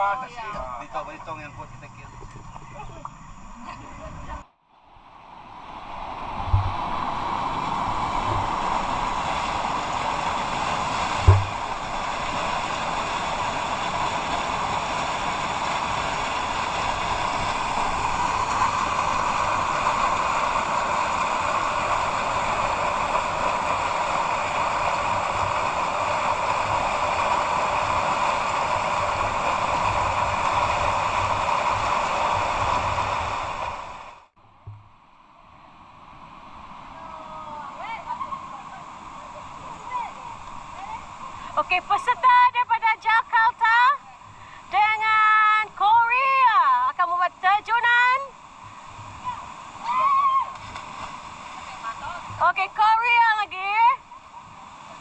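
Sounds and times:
river rapids rushing: 5.6s - 34.2s, 36.8s - 44.9s, 45.6s - 55.0s
low thumps: 6.4s - 7.2s, 11.2s - 12.2s.

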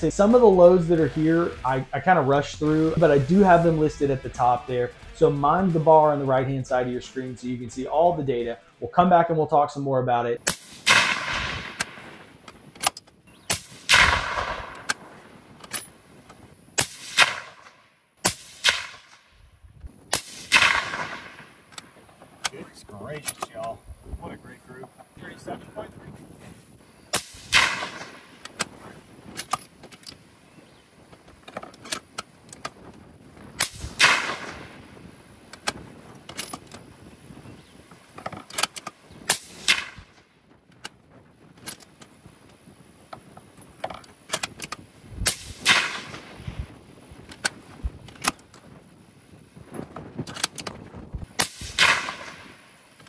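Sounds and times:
suppressed rifle shots: 10.4s - 12.9s, 13.5s - 15.9s, 16.8s - 19.3s, 20.1s - 21.8s, 27.1s - 29.6s, 33.6s - 35.0s, 38.6s - 40.2s, 45.2s - 46.5s, 51.3s - 53.0s
rifle bolt clicks and knocks: 11.8s - 13.2s, 15.6s - 16.4s, 23.2s - 23.7s, 28.4s - 30.2s, 31.1s - 33.0s, 35.5s - 36.9s, 38.1s - 39.0s, 43.1s - 44.8s, 47.2s - 48.6s, 49.9s - 50.8s.

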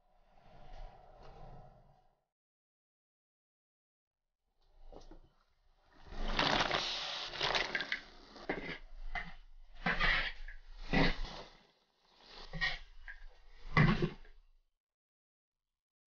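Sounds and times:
steam hissing and sizzling: 6.0s - 8.8s, 9.8s - 12.7s.

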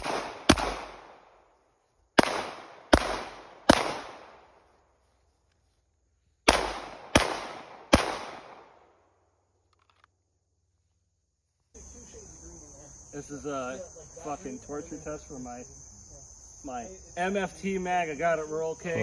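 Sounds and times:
gunshots with echo: 0.0s - 1.2s, 2.2s - 4.4s, 6.5s - 8.7s.

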